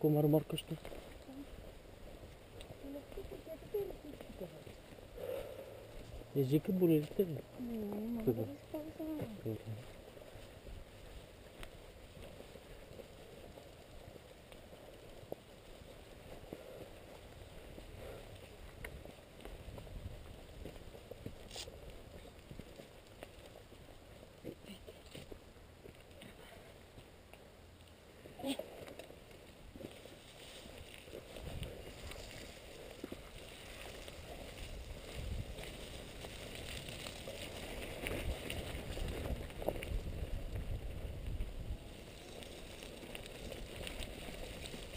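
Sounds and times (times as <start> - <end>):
bike low rumble on dirt: 0.8 - 24.6, 27.9 - 44.9
bike clicks and rattles: 29.8 - 44.9.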